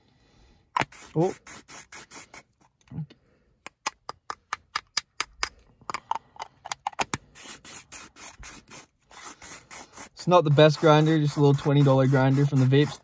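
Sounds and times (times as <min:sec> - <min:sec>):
herb grinder rasping: 0:07.4 - 0:13.0.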